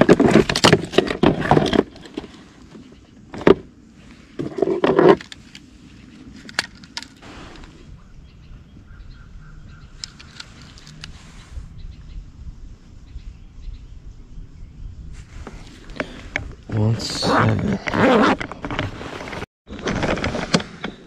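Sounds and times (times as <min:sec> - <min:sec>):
clicks and rattles of lip-grip tool: 0:10.0 - 0:11.1.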